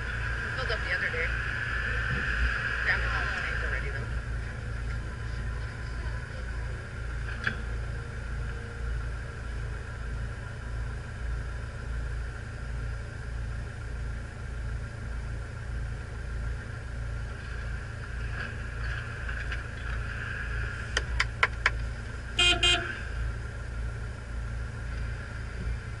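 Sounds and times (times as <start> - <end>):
vehicle engine idling: 0.0 - 26.0
vehicle horn toots: 22.4 - 23.1.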